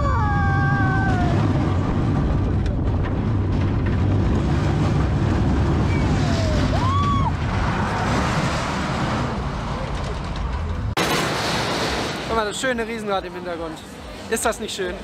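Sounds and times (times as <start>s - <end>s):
sled wheels rumbling on rail: 0.0s - 11.4s.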